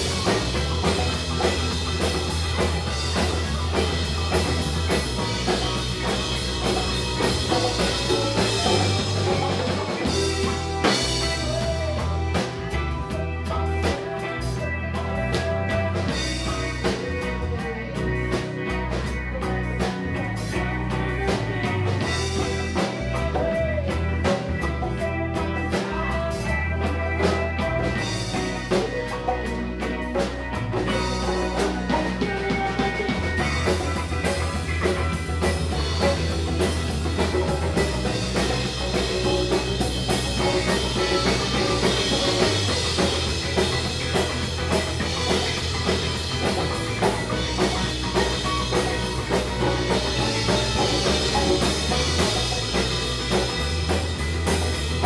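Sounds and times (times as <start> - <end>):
bass guitar: 0.0 - 55.0
congas: 0.0 - 55.0
drum kit: 0.0 - 55.0
electric guitar: 0.0 - 55.0
keyboard: 0.0 - 55.0.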